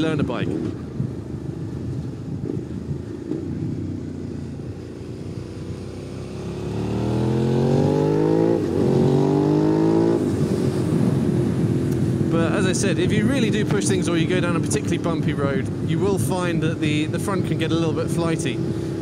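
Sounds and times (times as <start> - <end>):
motorcycle engine accelerating: 1.0 - 15.3.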